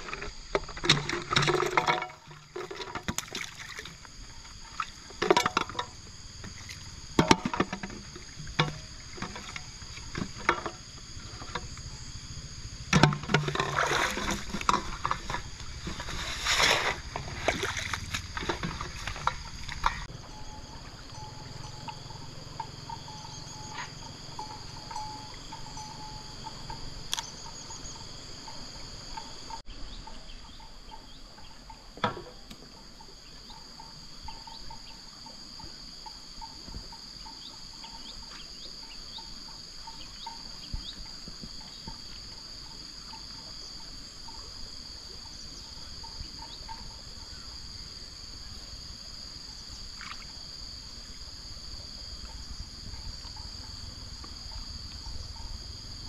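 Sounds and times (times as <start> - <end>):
low pulsing chirp: 17.0 - 48.6, 52.3 - 56.0.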